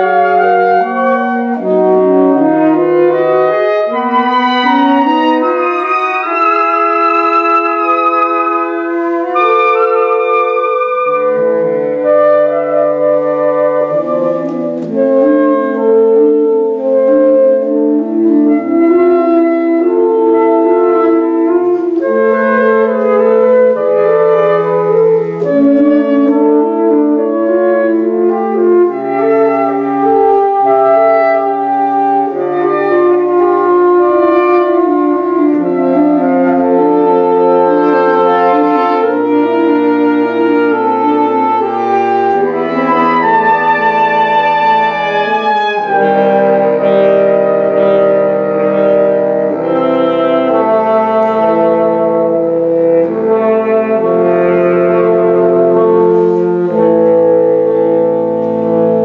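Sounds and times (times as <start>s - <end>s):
saxophone quartet playing: 0.0s - 59.0s.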